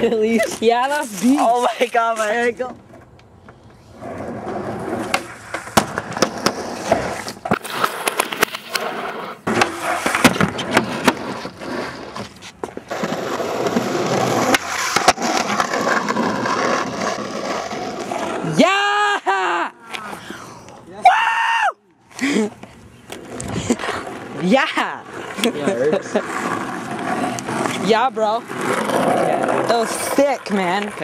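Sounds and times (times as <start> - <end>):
skateboard wheels rolling on pavement: 0.0 - 31.0
skateboard clacking: 4.9 - 18.5, 22.5 - 31.0.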